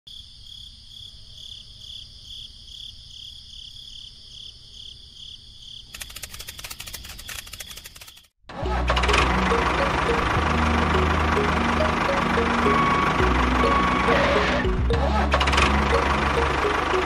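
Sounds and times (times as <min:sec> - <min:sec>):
crickets chirping: 0:00.1 - 0:08.3
fast clicking: 0:05.9 - 0:08.4.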